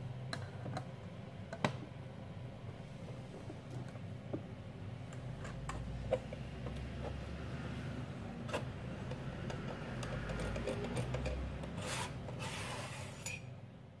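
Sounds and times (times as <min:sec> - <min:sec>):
rasping scrapes: 0:08.4 - 0:13.4.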